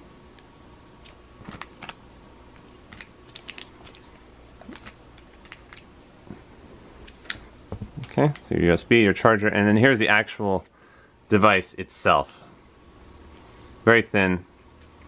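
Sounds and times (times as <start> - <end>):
plastic bags crinkling: 2.9 - 5.9.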